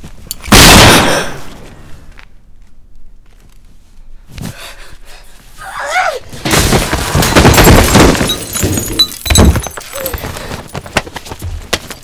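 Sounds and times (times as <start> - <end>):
crashing and banging impacts: 6.3 - 10.2.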